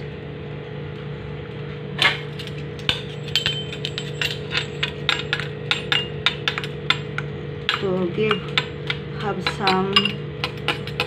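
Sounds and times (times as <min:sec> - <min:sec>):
steady low hum: 0:00.0 - 0:11.0
spoon clinking ceramic bowl: 0:07.7 - 0:11.0.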